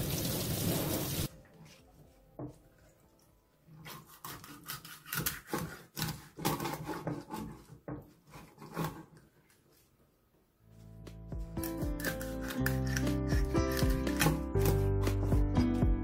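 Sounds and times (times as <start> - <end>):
knife cutting fish head: 3.8 - 9.2, 11.6 - 15.4.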